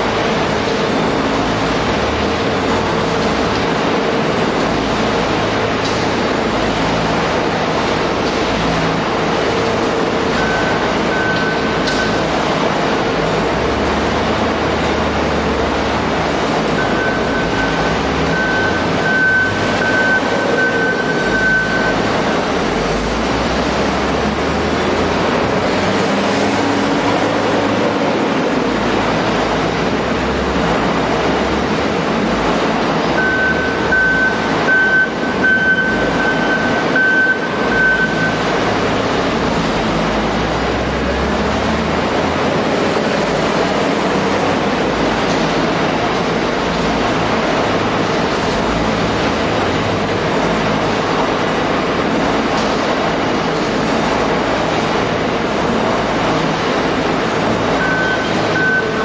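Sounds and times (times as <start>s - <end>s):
heavy machinery din: 0.0s - 59.0s
wheel loader diesel engine: 0.0s - 59.0s
reversing alarm beeps: 10.4s - 12.2s, 16.8s - 22.1s, 33.2s - 38.5s, 57.8s - 59.0s.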